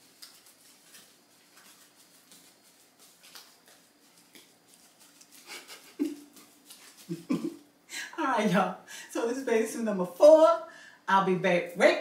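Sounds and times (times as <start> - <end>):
faint steady hum: 0.0 - 12.0
soft taps and rustles: 0.1 - 5.4.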